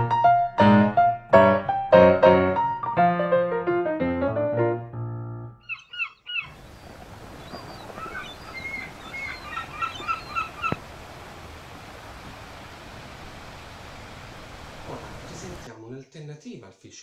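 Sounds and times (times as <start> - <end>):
gulls calling: 5.6 - 15.7
steady outdoor hiss: 5.8 - 15.7.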